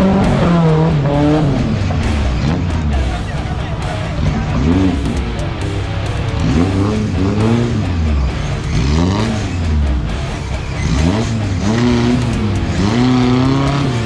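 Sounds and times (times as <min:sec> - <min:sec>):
engine revving hard: 0:00.0 - 0:14.0.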